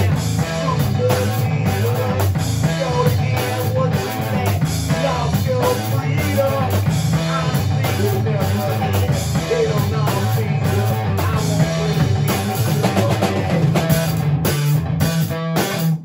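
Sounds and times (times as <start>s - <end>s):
man singing: 0.0s - 14.2s
drum kit: 0.0s - 16.0s
electric guitar: 0.0s - 16.0s.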